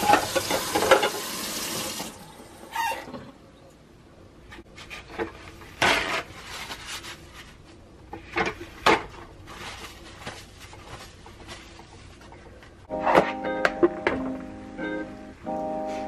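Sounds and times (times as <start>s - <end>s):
dishes clattering at a sink: 0.0s - 1.4s.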